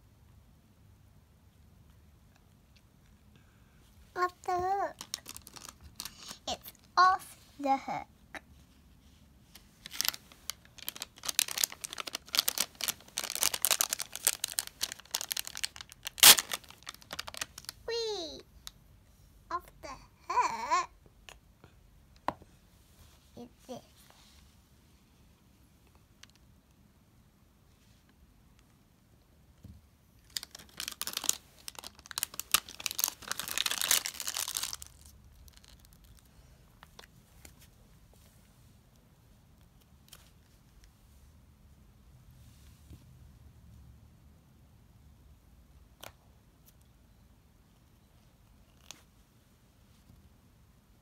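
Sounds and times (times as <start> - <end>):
plastic doll crinkling and rustling: 4.1 - 8.0, 8.6 - 18.8, 30.1 - 41.0, 47.8 - 50.3
foil packet crackling: 4.7 - 6.5, 9.8 - 17.9, 30.3 - 36.3
foil packet tearing: 4.9 - 6.4, 9.8 - 17.8, 30.3 - 36.1.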